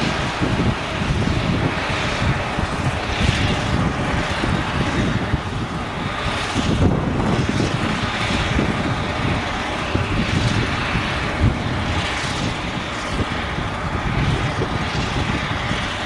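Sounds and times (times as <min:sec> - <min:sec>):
harvester engine drone: 0:00.0 - 0:16.0.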